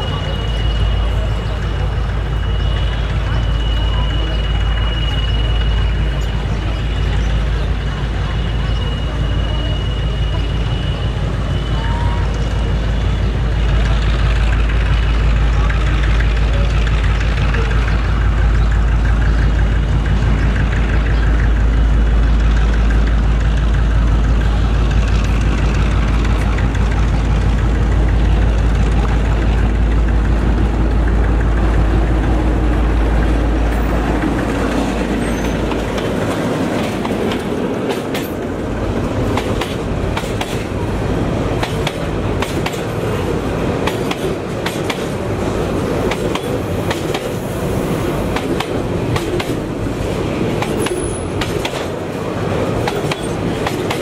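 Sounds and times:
diesel locomotive rumbling: 0.0s - 54.0s
wheels clicking over rail joints: 13.8s - 54.0s.

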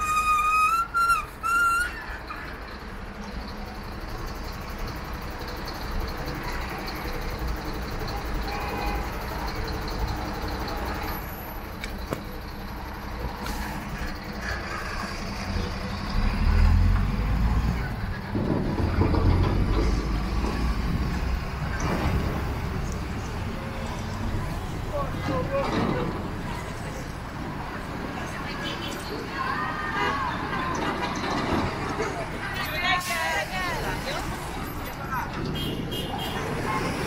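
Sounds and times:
diesel truck engine rumbling: 0.0s - 37.0s.

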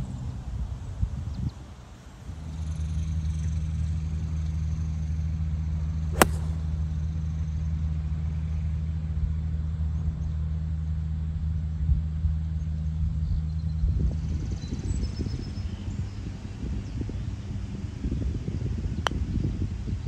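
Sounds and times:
golf club striking ball: 6.1s - 6.8s.

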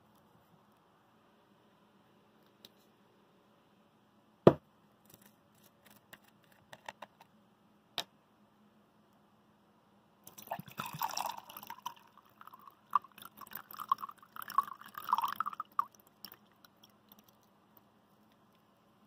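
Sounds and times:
water pouring onto ice: 10.3s - 17.4s
water dripping: 10.3s - 17.6s.

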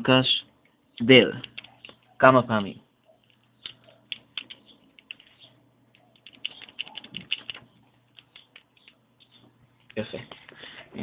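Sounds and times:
keyboard key clicks: 1.4s - 2.0s, 3.6s - 5.4s, 6.0s - 9.0s.

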